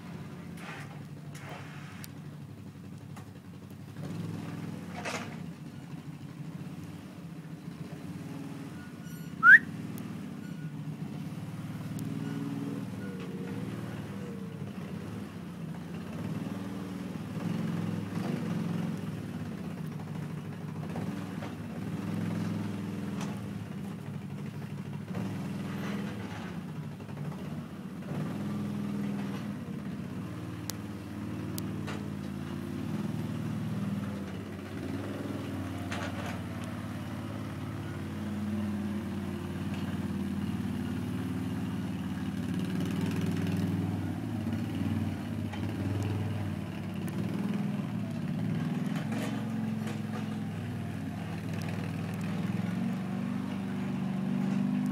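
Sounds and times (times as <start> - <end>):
quad bike engine running: 0.0 - 54.9
short rising whistle: 9.1 - 9.7.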